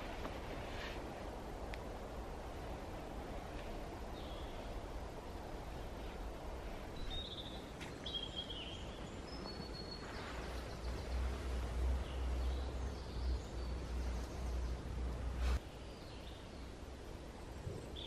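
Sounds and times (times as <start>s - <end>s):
birds chirping and trilling: 4.0s - 4.9s, 6.8s - 18.0s.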